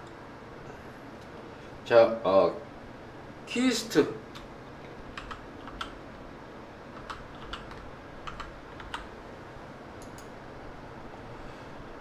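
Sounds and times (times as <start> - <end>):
keyboard typing: 5.1 - 6.0, 6.9 - 9.1.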